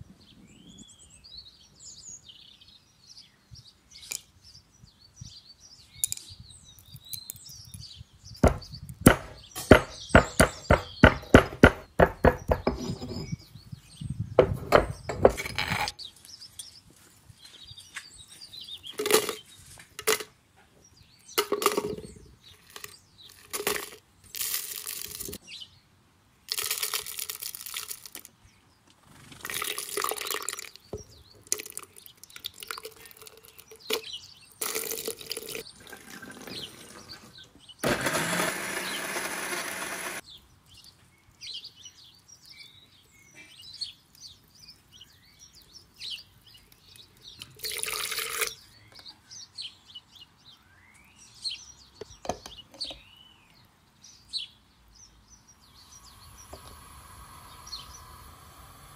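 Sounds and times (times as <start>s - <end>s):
pestle pounding spices in mortar: 8.4s - 12.8s
scraping and clattering in mortar: 8.5s - 13.4s, 14.4s - 16.0s.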